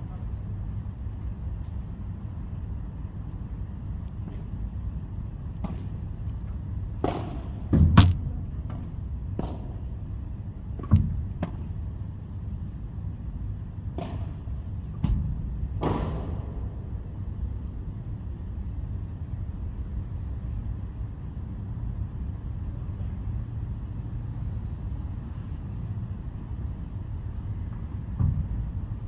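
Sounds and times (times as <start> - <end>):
ball struck by rackets: 5.6 - 6.0, 7.0 - 9.9, 13.9 - 16.8.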